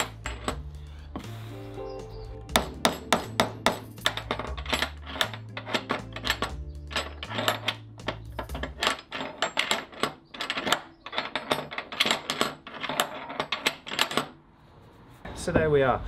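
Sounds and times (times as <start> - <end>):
hammer tapping metal rivets: 0.0 - 0.7, 2.5 - 14.4.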